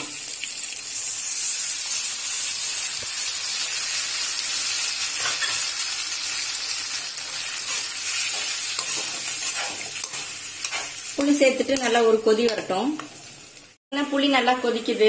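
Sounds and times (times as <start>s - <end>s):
food sizzling in oil: 0.0s - 15.0s
metal ladle stirring pan: 7.3s - 12.6s.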